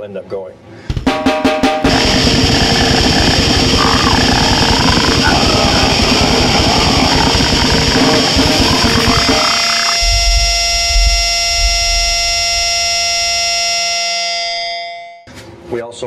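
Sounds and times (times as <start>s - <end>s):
distorted noise over fast drumming: 0.9s - 13.5s
sustained droning chord: 1.9s - 14.5s.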